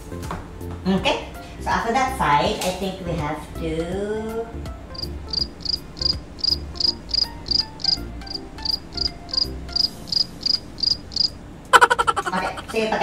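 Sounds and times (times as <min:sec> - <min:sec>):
cricket chirping: 0:05.0 - 0:12.7.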